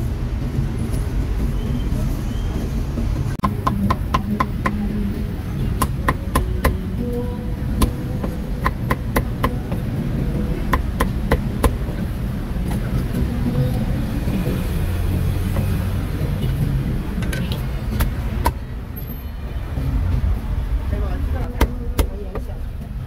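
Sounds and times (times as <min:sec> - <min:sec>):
cleaver chopping meat on wood: 0:03.4 - 0:04.9, 0:05.7 - 0:06.8, 0:07.8 - 0:09.8, 0:10.6 - 0:11.8.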